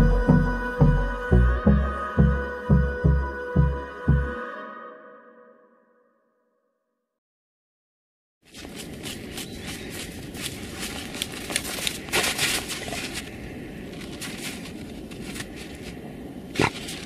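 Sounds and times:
dogs digging in snow: 8.5 - 17.0.

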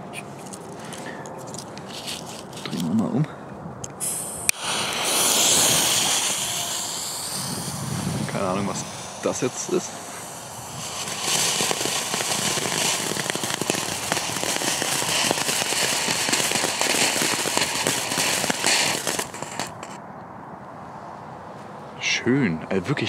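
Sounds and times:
firework crackles: 0.0 - 2.9, 4.0 - 20.0
firework fountain hissing: 4.0 - 20.0.

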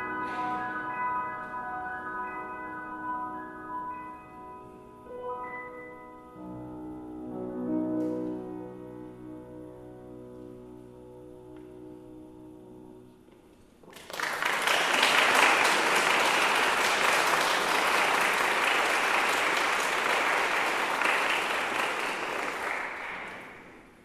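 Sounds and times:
piano chord: 0.0 - 13.3
audience applauding: 13.9 - 24.0.

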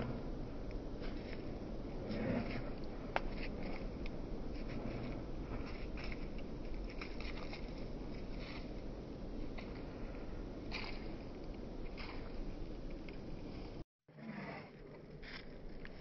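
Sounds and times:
steady low rumble: 0.0 - 13.9
dogs scuffing on dirt and grass: 1.0 - 9.0.

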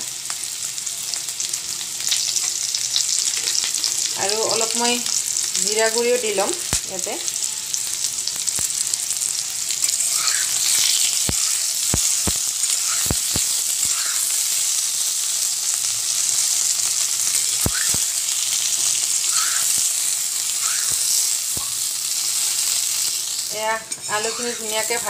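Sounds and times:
potatoes sizzling in hot oil: 0.0 - 25.0.

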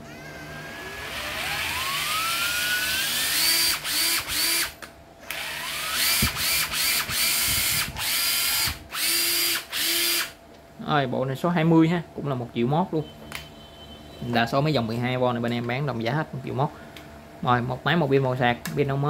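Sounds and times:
cordless drill motor whining: 0.0 - 10.4.

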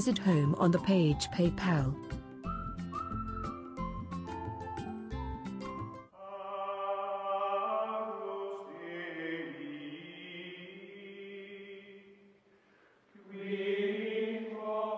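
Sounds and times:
chant-like choral music: 6.1 - 12.4, 13.1 - 14.9.

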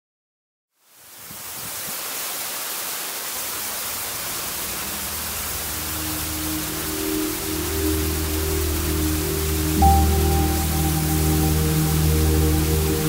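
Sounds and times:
waterfall rushing: 1.0 - 13.0
low held music notes: 3.9 - 13.0.

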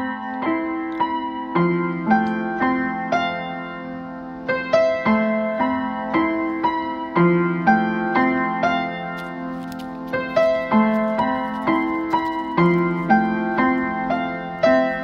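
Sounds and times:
slow gentle piano music: 0.0 - 15.0.

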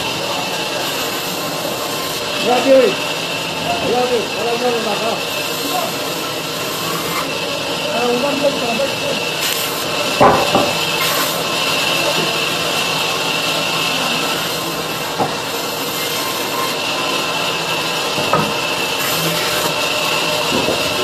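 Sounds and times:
band saw cutting wood: 0.0 - 21.0
wooden blocks knocking on metal: 10.2 - 10.9.

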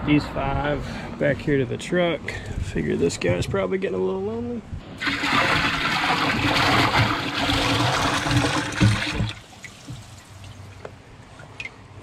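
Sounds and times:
water pouring into tub: 5.0 - 10.6.

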